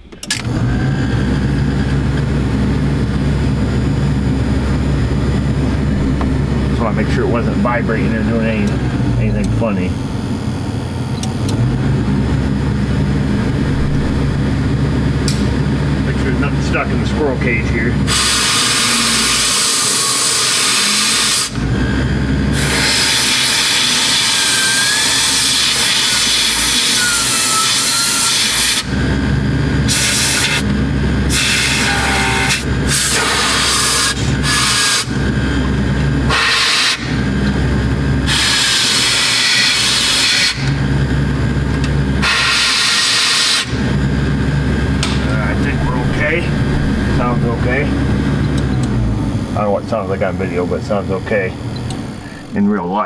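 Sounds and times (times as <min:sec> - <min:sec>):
blower motor humming: 0:00.0 - 0:53.0
compressed air hissing: 0:18.1 - 0:21.6, 0:36.3 - 0:37.2, 0:38.3 - 0:40.7, 0:42.2 - 0:43.8.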